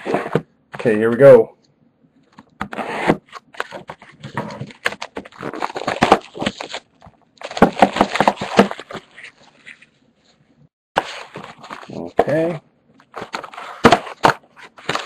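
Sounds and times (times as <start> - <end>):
wrapping and cardboard crackling: 2.8 - 9.9, 11.0 - 15.0.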